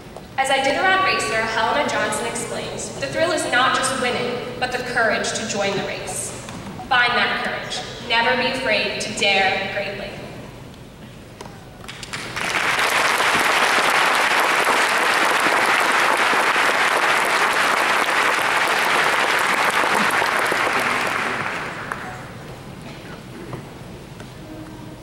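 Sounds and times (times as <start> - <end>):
audience applauding: 11.8 - 22.4.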